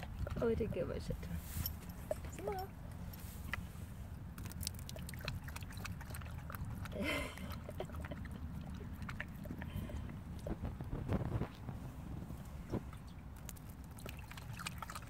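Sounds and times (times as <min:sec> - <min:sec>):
dog lapping water: 0:00.0 - 0:01.2, 0:03.4 - 0:11.7, 0:12.6 - 0:15.0.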